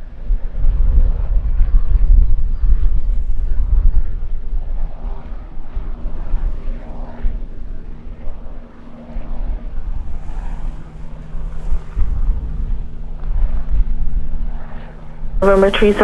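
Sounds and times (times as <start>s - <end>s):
aircraft engines rumbling: 0.0s - 16.0s
steady hum: 7.7s - 16.0s.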